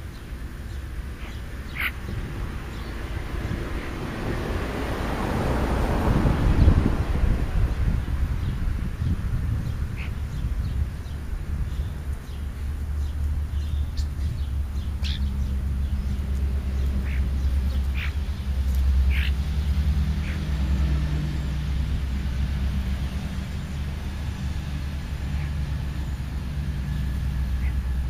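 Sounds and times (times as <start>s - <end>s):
steady low rumble: 0.0s - 28.0s
short sharp bird calls: 1.2s - 2.0s.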